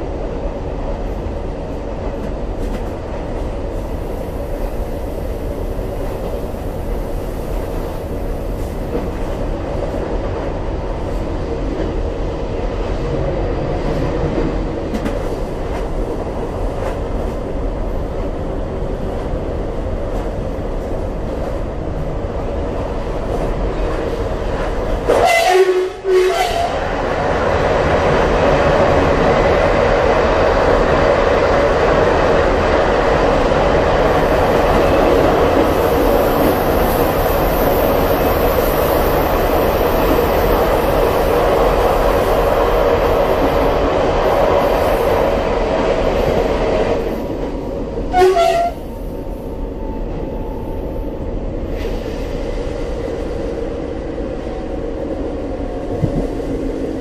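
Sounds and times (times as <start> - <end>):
train wheels rumbling: 0.0 - 57.0.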